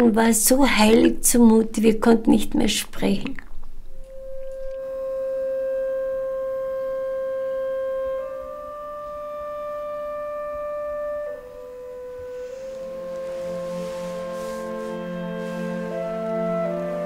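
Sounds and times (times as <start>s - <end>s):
slow film music melody: 3.9s - 17.0s.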